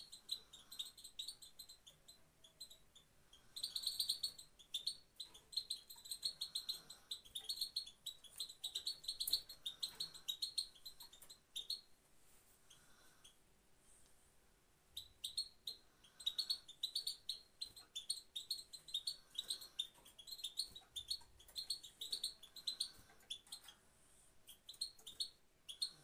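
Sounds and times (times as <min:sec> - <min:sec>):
goldfinch chattering: 0:03.4 - 0:11.8, 0:15.0 - 0:23.7.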